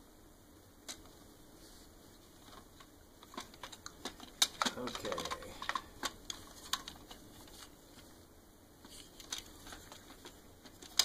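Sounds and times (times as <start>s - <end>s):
plastic parts clicking: 2.4s - 8.0s, 8.8s - 11.0s.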